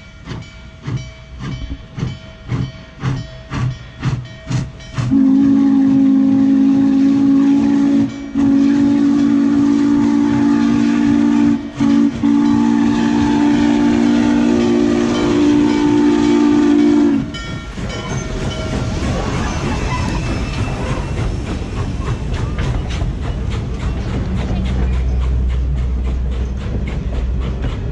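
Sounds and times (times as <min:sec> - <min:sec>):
steam hissing: 0:00.2 - 0:27.9
steam whistle blowing: 0:05.0 - 0:17.4
locomotive running gear clatter: 0:17.4 - 0:27.9.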